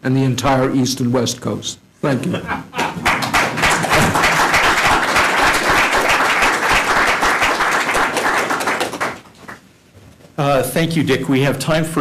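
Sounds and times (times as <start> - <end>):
audience clapping: 2.7 - 9.7.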